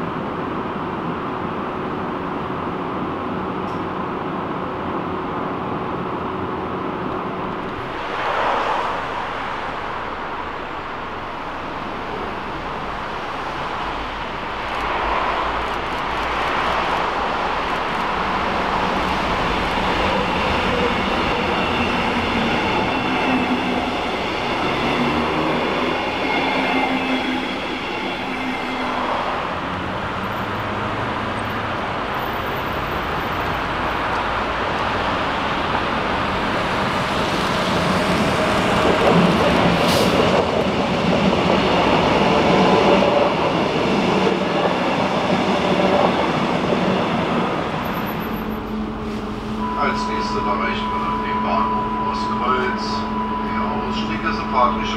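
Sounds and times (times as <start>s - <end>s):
train wheels rolling on rails: 7.1s - 49.7s
high wheel squeal: 20.1s - 29.5s, 47.9s - 54.9s.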